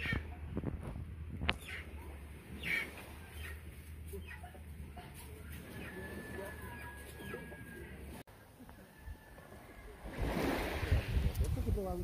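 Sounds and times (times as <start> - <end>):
birds calling: 1.3 - 8.8.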